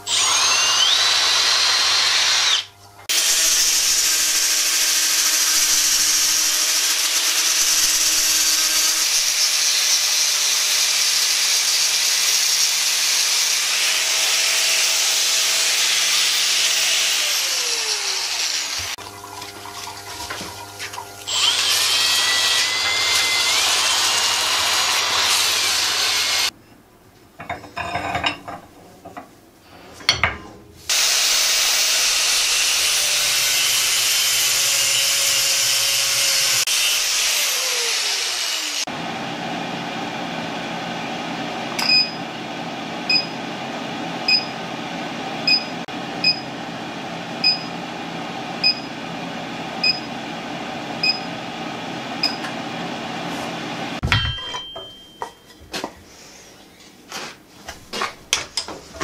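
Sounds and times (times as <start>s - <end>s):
lathe winding down whine: 0.0s - 2.7s
cloth sanding spinning steel: 3.2s - 26.5s.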